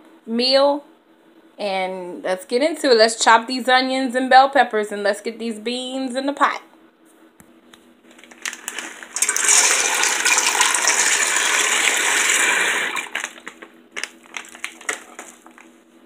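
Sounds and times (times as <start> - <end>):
dried beans pouring into metal pot: 8.3 - 13.5.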